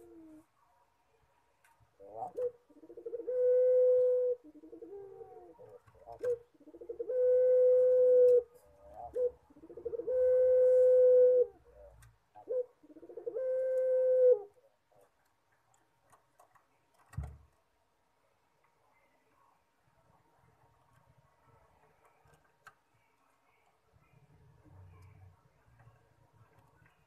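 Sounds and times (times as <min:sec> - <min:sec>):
dove cooing: 0:00.0 - 0:00.5, 0:02.0 - 0:14.6.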